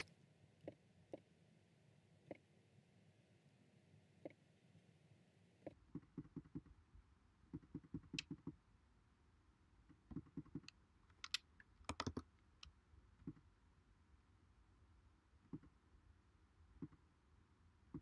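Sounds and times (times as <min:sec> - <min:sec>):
keyboard typing: 0:10.1 - 0:12.3
mouse clicks: 0:10.1 - 0:13.4.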